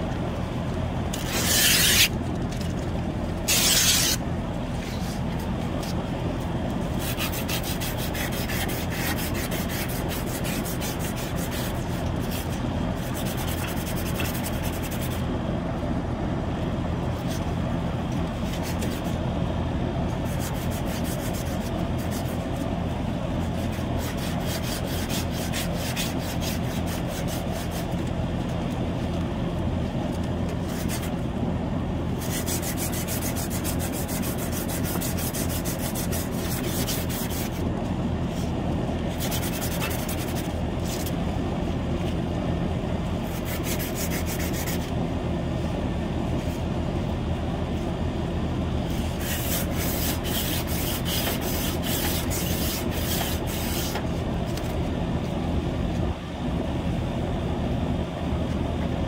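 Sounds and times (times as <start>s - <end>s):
air conditioner unit humming: 0.0s - 59.0s
sand cloth rubbing copper pipe: 1.2s - 2.1s, 3.5s - 4.2s, 7.0s - 15.2s, 32.2s - 37.6s, 48.9s - 54.0s.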